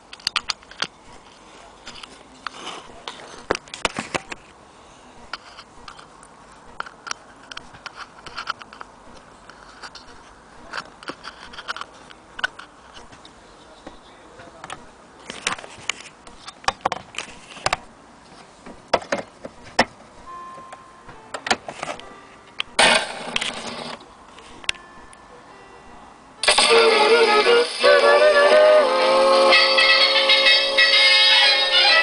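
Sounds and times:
gramophone sound box clicks and knocks: 0:18.7 - 0:23.5.

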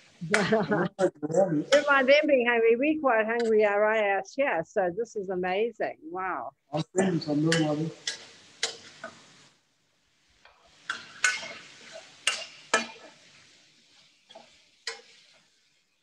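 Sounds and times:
rustling hiss: 0:00.0 - 0:02.8, 0:06.7 - 0:16.0.

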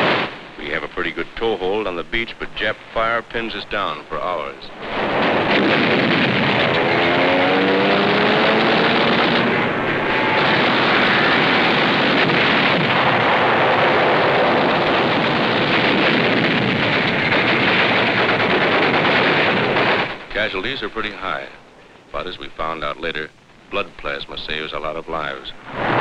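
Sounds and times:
rising whines: 0:04.6 - 0:16.8.

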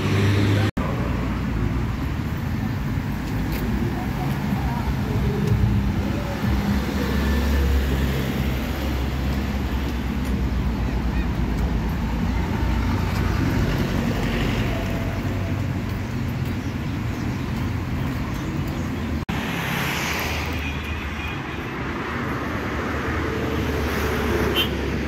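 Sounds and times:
vehicles passing: 0:00.0 - 0:25.0.

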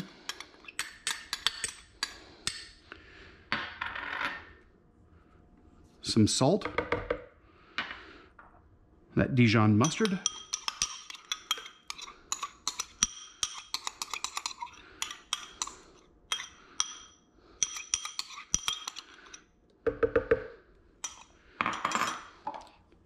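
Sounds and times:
metal spoon scraping glass bowl: 0:09.8 - 0:19.5, 0:21.0 - 0:21.3.

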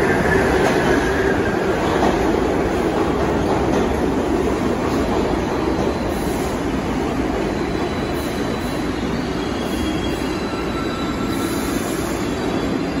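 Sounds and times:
train wheels rumbling: 0:00.0 - 0:13.0
faint high squeals: 0:07.5 - 0:13.0.

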